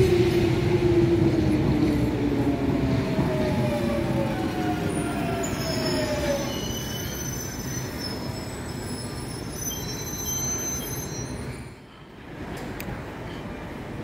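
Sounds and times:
tube train whine: 0.0 - 14.0
wheel squeal: 5.3 - 11.8.

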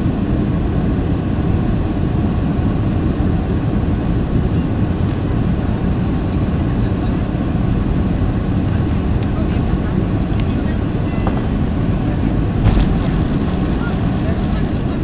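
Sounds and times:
jet engines roaring in cabin: 0.0 - 15.0.

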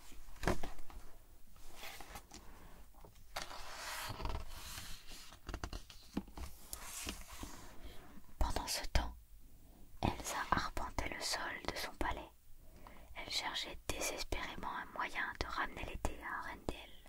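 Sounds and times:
book page turning: 3.0 - 7.7.

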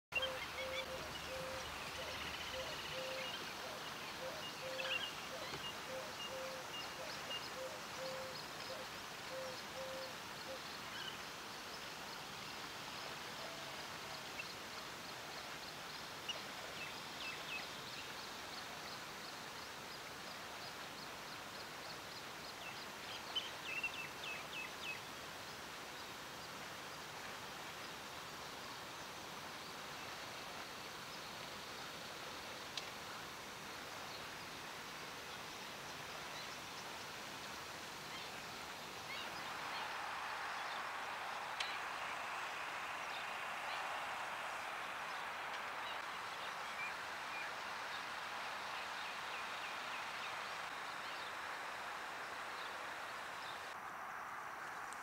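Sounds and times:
steady hiss: 0.2 - 55.0.

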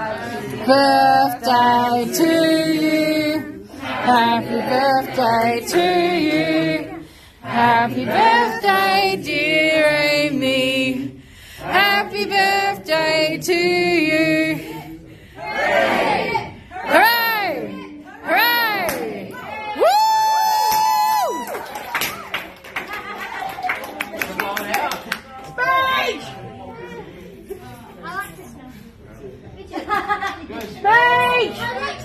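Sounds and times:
group singing unaccompanied: 0.0 - 19.5.

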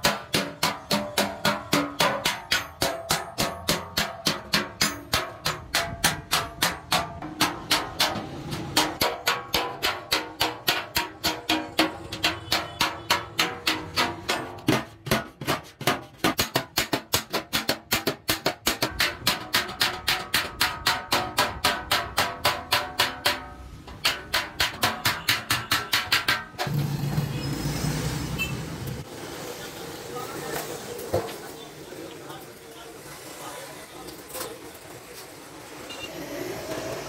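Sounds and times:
hammer striking metal can: 0.0 - 26.8.

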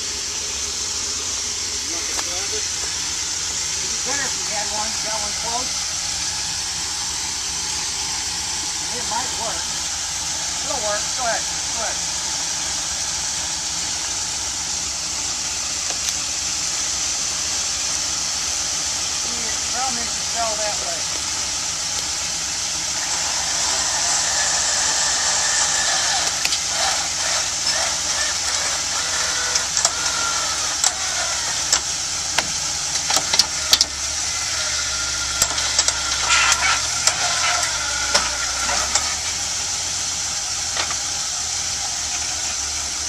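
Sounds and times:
jeep engine at low revs: 0.0 - 43.0
steady high hiss: 0.0 - 43.0
sharp clicks and knocks: 29.5 - 31.0, 31.6 - 34.0, 35.4 - 39.4, 40.7 - 41.0.

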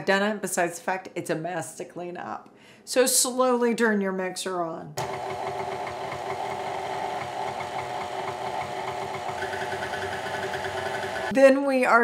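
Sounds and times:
stand mixer motor whining: 5.0 - 11.3.

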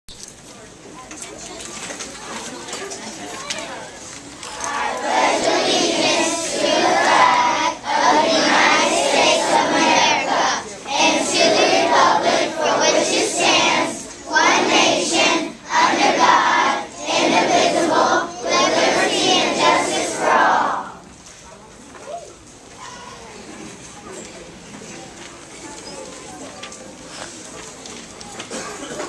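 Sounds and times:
children singing in unison: 4.6 - 21.0.

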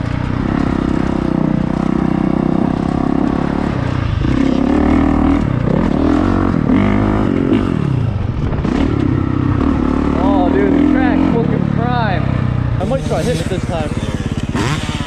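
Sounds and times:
motocross bike engine revving: 0.0 - 15.0.

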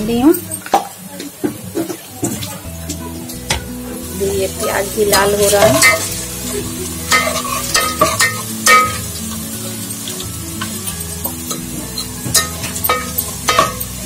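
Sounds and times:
onions sizzling in hot oil: 0.0 - 14.0
ladle scraping pot: 5.1 - 6.2, 7.1 - 9.0.

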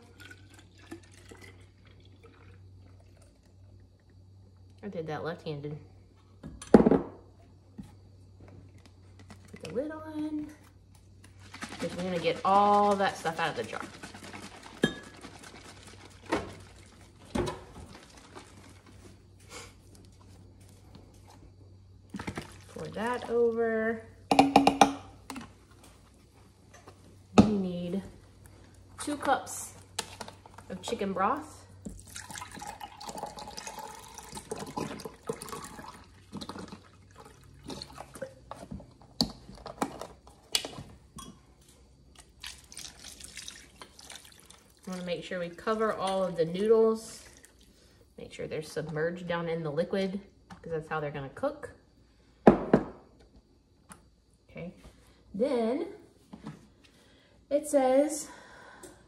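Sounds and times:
milk sloshing in a shaken bottle: 0.0 - 3.4, 10.9 - 21.2, 22.1 - 23.6, 28.6 - 39.0, 42.1 - 46.0, 47.0 - 47.8
liquid pouring into glass cup: 0.0 - 3.6, 31.8 - 38.4, 42.2 - 44.9
liquid pouring over pasta: 0.0 - 4.0, 11.2 - 19.3, 31.7 - 38.5, 42.1 - 45.7, 47.1 - 48.0.

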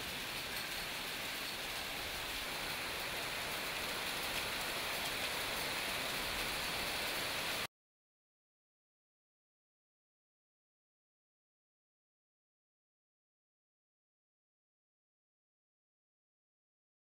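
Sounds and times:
heavy rain and hail pattering: 0.0 - 7.7.

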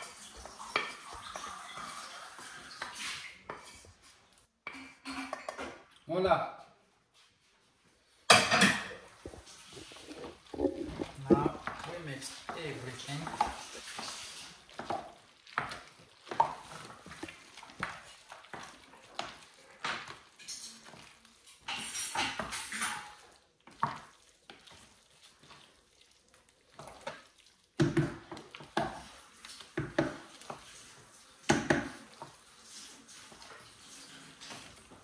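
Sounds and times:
spoon scraping steel pot: 9.2 - 11.7.

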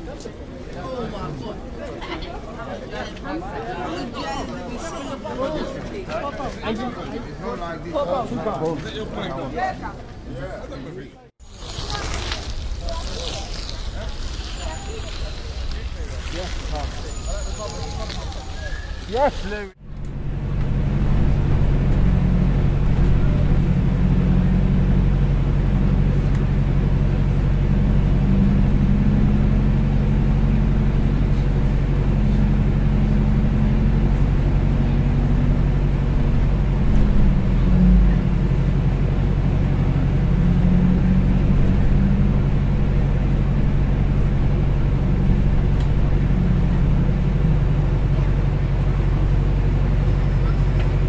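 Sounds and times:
large engine droning: 19.6 - 51.0.

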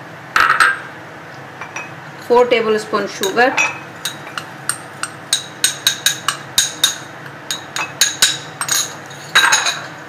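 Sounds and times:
metal spoon clinking against cup: 3.2 - 10.0.

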